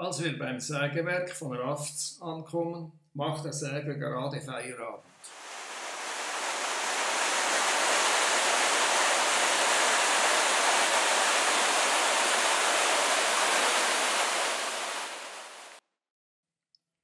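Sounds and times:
flowing water rushing: 5.2 - 15.8.

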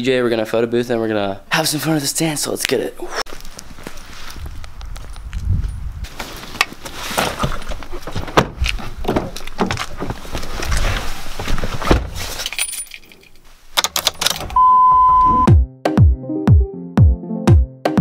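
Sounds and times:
car door opening: 7.2 - 10.5
car keys jangling: 12.4 - 14.6
loud steady beep: 14.6 - 15.5
electronic music with kick drum: 15.2 - 18.0.

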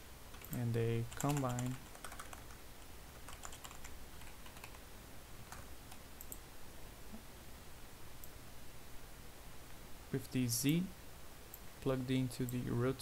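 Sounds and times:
faint keyboard typing: 0.3 - 6.5, 11.5 - 13.0.

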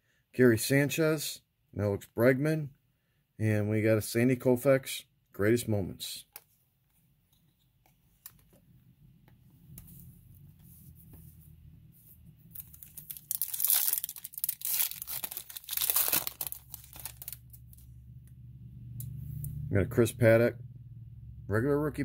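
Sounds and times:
foil wrapper tearing and crinkling: 12.5 - 17.5.

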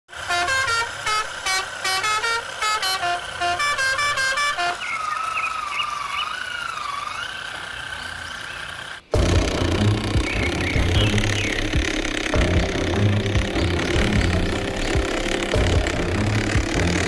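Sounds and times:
musical horn beeping tune: 0.1 - 5.2, 9.2 - 17.0.

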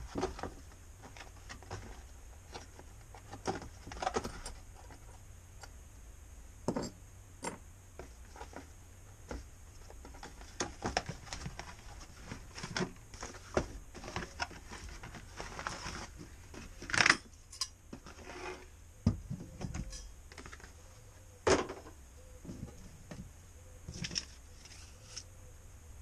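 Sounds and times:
cardboard and paper rustling: 0.0 - 5.1, 8.0 - 17.2.

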